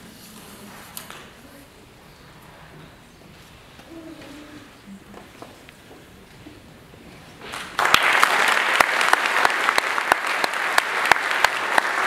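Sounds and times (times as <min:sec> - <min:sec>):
audience applause: 0:07.5 - 0:12.0.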